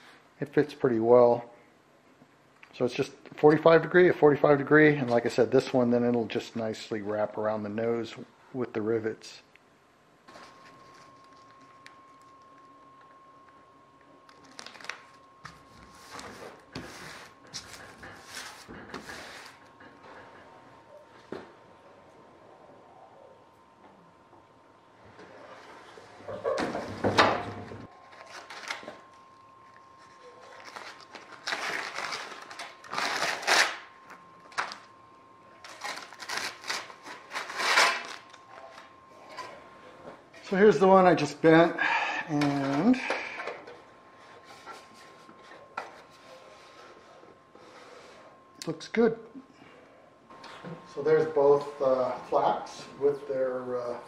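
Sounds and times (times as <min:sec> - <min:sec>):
faint steady high hum: 0:00.0 - 0:54.0
plastic film crinkling and rustling: 0:14.2 - 0:16.6, 0:27.9 - 0:34.9, 0:35.6 - 0:39.5.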